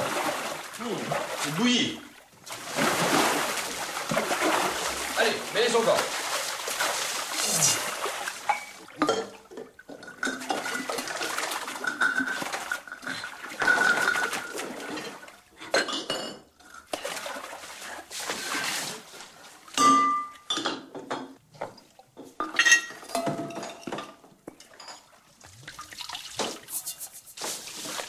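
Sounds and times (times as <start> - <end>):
liquid sloshing and pouring: 0.0 - 15.4, 24.6 - 28.0
glass bottles clinking: 8.5 - 10.8, 11.8 - 14.4, 15.7 - 16.5, 19.8 - 21.4, 22.4 - 25.1.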